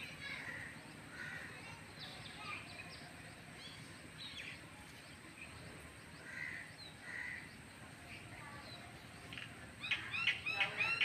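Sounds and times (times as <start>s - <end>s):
birds chirping: 0.0s - 11.0s
low background noise: 0.0s - 11.0s
harsh bird calls: 6.1s - 7.7s, 9.4s - 11.0s.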